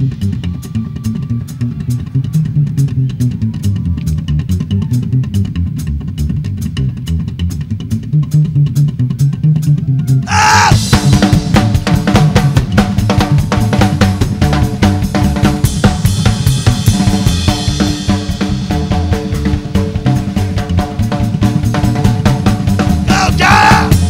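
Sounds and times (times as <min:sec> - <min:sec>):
drum kit fast beat: 0:10.3 - 0:24.0.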